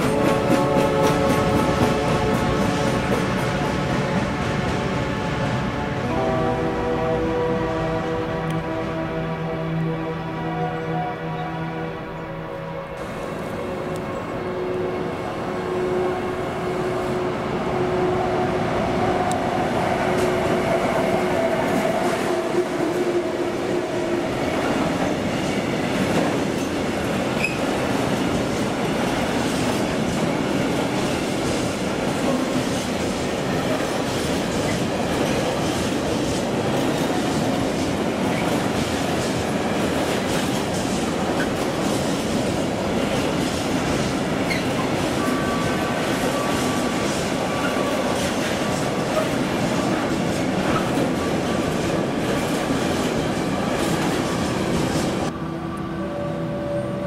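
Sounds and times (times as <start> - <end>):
train wheels rumbling and clattering: 0.0 - 6.2, 17.2 - 55.4
electric locomotive humming: 0.0 - 57.0.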